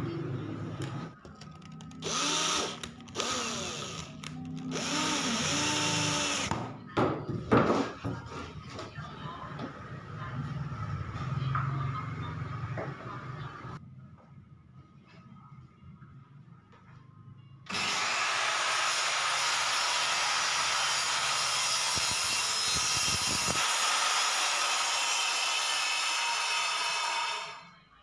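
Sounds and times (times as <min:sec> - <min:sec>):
circular saw cutting plywood: 0:17.7 - 0:27.6.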